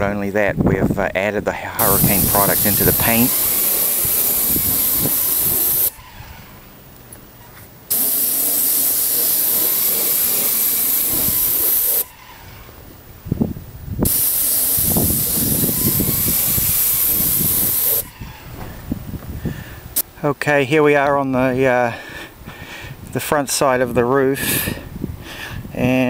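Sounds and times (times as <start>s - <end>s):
paint spray gun hissing: 1.8s - 6.3s, 7.9s - 12.5s, 14.0s - 18.3s.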